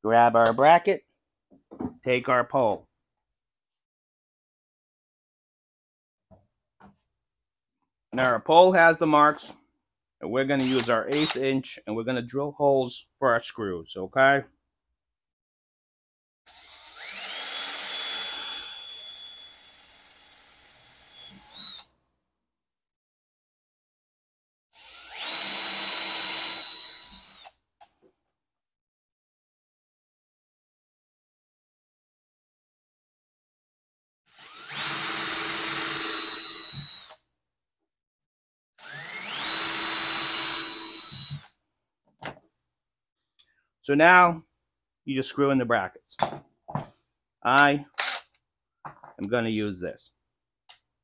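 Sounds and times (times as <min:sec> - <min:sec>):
cordless drill whining: 0:10.6 - 0:11.4, 0:16.5 - 0:21.9, 0:24.8 - 0:27.6, 0:34.3 - 0:37.2, 0:38.8 - 0:41.6, 0:48.0 - 0:48.3.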